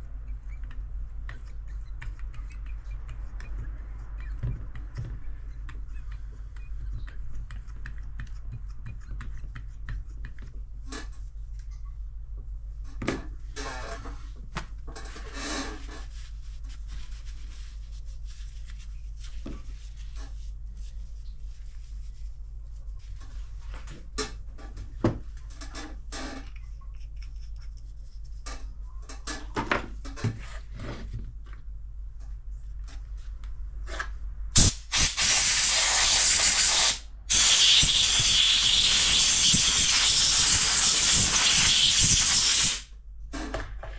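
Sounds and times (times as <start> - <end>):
loud steady hiss: 34.6 - 42.9.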